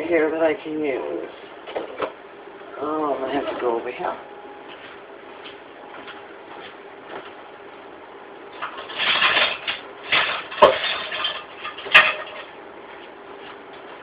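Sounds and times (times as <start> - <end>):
rustling and scraping: 8.5 - 14.0.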